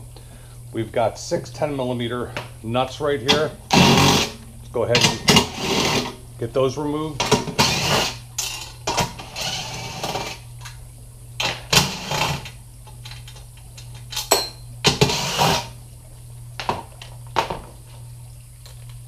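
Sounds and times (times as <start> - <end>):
power tool spinning nuts: 3.7 - 6.2, 7.2 - 8.2, 8.9 - 10.4, 11.4 - 12.6, 14.9 - 15.8.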